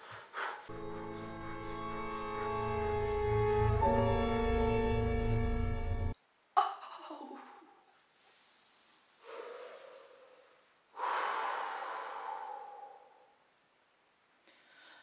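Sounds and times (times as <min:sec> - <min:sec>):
orchestral music: 0:00.7 - 0:06.2.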